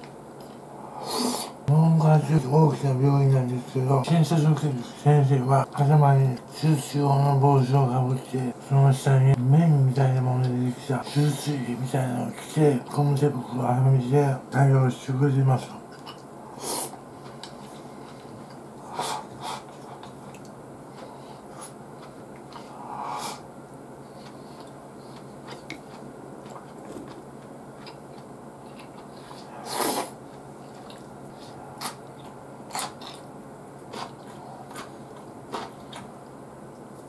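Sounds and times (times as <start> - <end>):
man chewing food: 0.0 - 0.8, 15.8 - 37.0
quiet room hum: 0.0 - 37.0.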